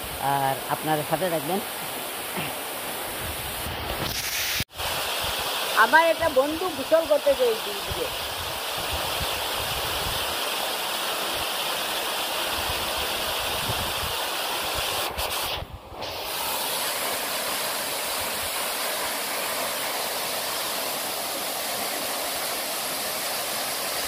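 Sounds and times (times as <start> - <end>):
waterfall pouring into a pool: 4.0 - 15.4, 16.2 - 24.0.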